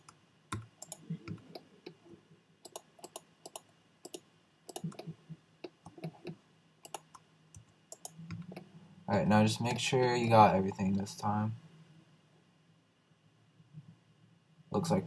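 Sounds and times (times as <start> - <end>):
mouse and keyboard clicking: 2.6 - 8.6.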